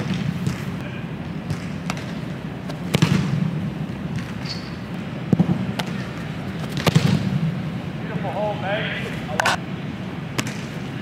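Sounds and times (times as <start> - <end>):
footballs being kicked: 1.5 - 3.4, 5.3 - 7.4.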